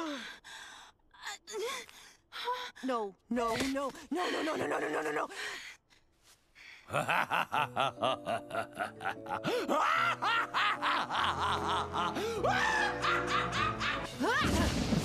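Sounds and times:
man cackling laughter: 6.9s - 14.1s.

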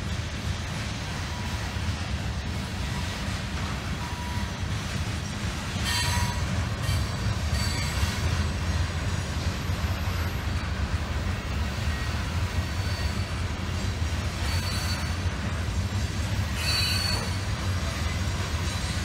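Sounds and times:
freight train rumbling past: 0.0s - 19.0s
wheel squeals: 5.8s - 8.8s, 11.7s - 15.6s, 16.2s - 19.0s.

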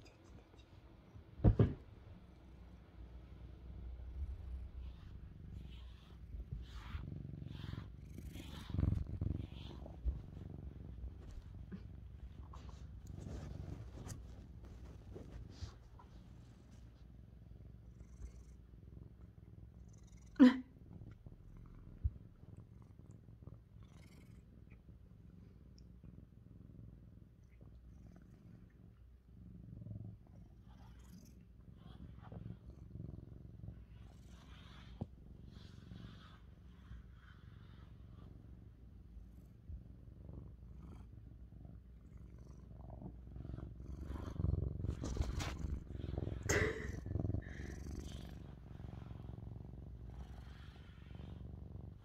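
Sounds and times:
cat purring: 0.0s - 52.0s
soft thump: 1.4s - 2.0s.

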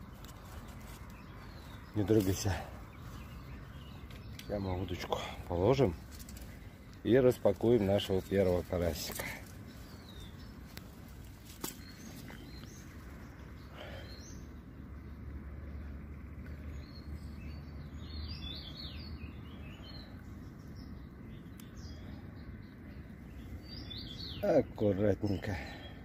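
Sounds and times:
steady low rumble: 0.0s - 18.3s
small birds chirping: 0.0s - 26.0s.

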